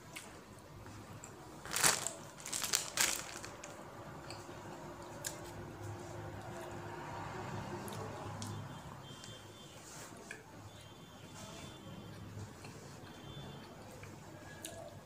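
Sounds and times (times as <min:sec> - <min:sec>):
plastic bag crinkling: 0:01.6 - 0:03.8.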